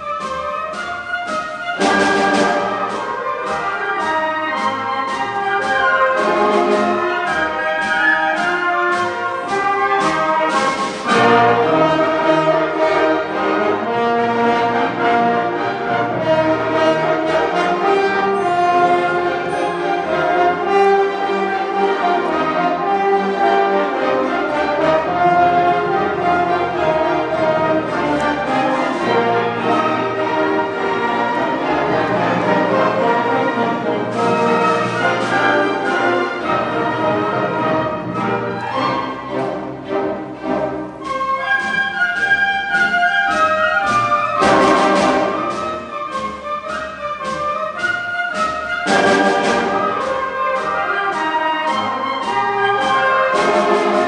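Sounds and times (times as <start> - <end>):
sharp percussive strokes: 0.0 - 13.0, 27.5 - 36.9, 40.4 - 54.0
orchestra playing with brass: 0.0 - 54.0.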